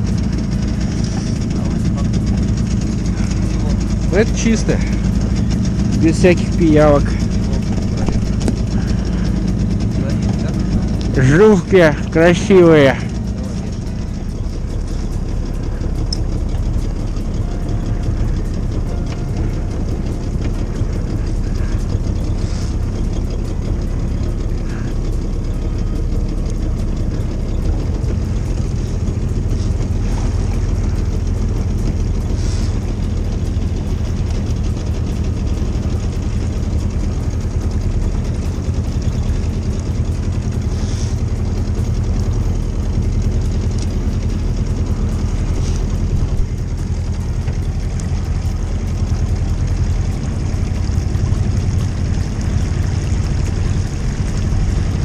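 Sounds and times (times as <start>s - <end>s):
outboard motor running: 0.0s - 55.0s.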